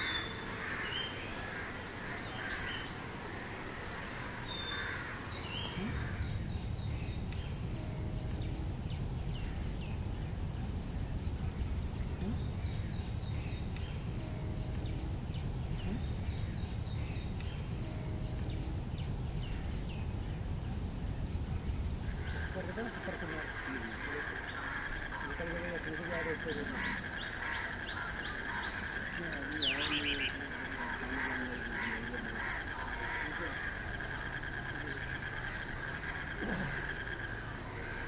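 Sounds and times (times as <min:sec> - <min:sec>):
harsh bird calls: 0:00.0 - 0:10.3, 0:21.4 - 0:38.0
steady high hiss: 0:00.0 - 0:38.0
steady low rumble: 0:05.2 - 0:29.5.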